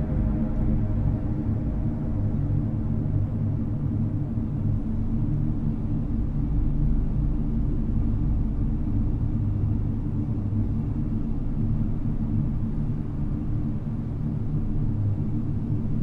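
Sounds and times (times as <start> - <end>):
ambient drone music: 0.0 - 10.0.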